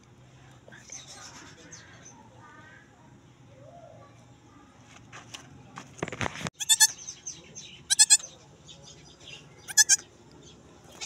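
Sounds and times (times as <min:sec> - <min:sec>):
goat bleating: 0:06.6 - 0:07.0, 0:07.9 - 0:08.3, 0:09.7 - 0:10.0.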